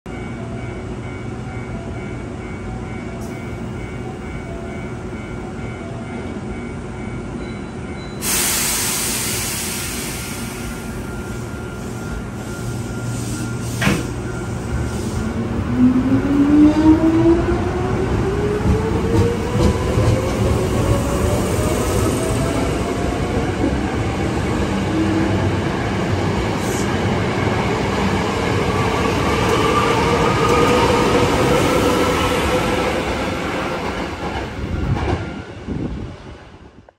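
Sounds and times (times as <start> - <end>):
loud hiss of air: 8.2 - 14.2
sharp clunk: 13.8 - 14.1.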